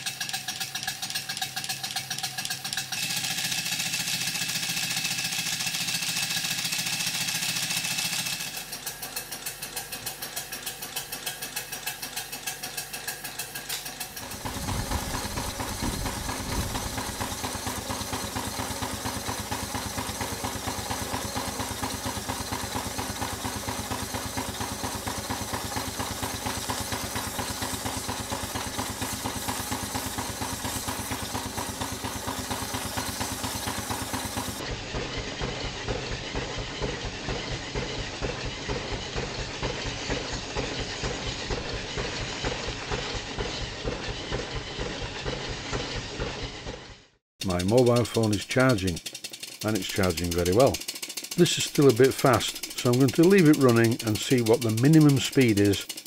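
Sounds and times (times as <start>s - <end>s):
steam engine exhaust hissing: 0.0s - 46.9s, 47.5s - 56.0s
low rapid exhaust beat: 14.1s - 34.6s, 49.7s - 56.0s.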